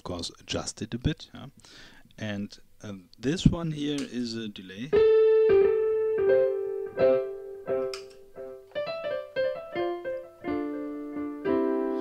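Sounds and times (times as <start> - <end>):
keyboard notes with delay: 4.9 - 12.0.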